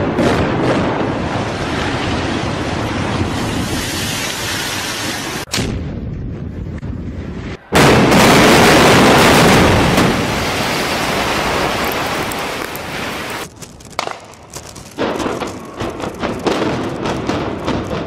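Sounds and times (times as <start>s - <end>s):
roar of collapsing concrete: 7.8s - 18.0s
sharp cracks and pops: 11.4s - 18.0s.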